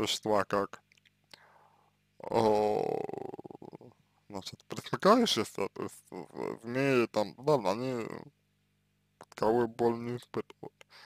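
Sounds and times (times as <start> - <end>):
low electrical hum: 0.0 - 11.0
man's drawn-out uh: 2.2 - 3.9, 5.4 - 8.3.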